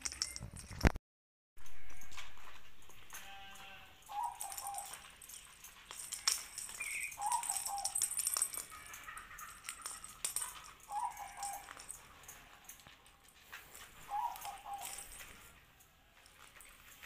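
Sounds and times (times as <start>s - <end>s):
bird calling: 4.1s - 5.1s, 6.8s - 8.1s, 10.9s - 11.8s, 14.0s - 15.2s
plastic ball rattling on tiles: 5.9s - 12.0s.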